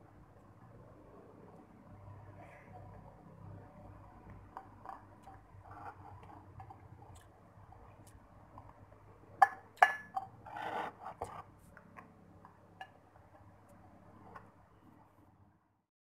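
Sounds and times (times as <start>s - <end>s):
spoon scraping plate: 4.6s - 7.2s, 9.8s - 11.5s
light spoon taps: 9.4s - 10.3s
spoon knocking on ceramic plate: 9.4s - 10.4s.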